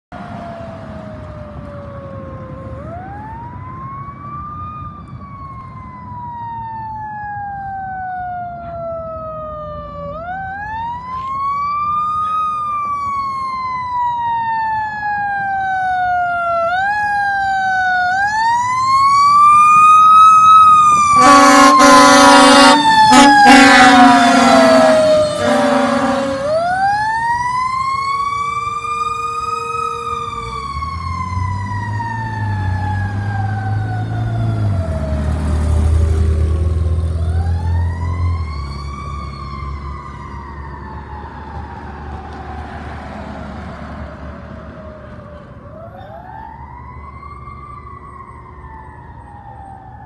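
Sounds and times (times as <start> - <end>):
fire engine siren wailing: 0.1 - 50.0
fire engine horn blasts: 20.9 - 26.9.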